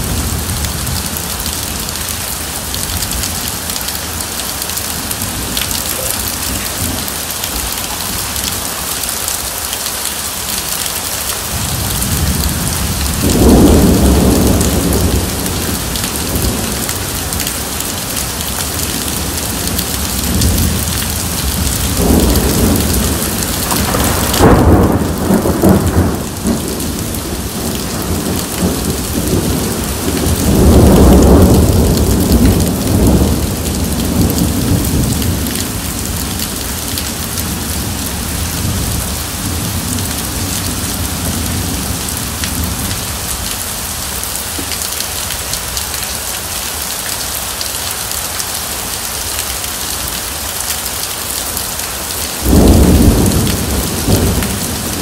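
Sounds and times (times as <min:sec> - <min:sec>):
heavy rain splashing: 0:00.0 - 0:55.0
rolling thunder: 0:11.6 - 0:17.8, 0:19.1 - 0:36.2, 0:52.4 - 0:55.0.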